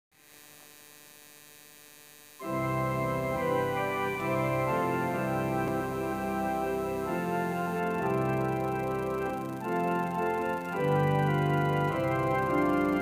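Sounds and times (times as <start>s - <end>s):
electronic organ chords: 2.4s - 13.0s.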